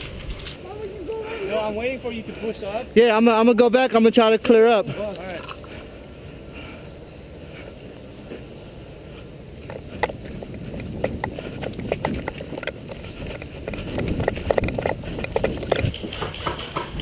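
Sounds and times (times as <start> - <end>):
footsteps on gravel: 0.0 - 1.3, 9.1 - 17.0.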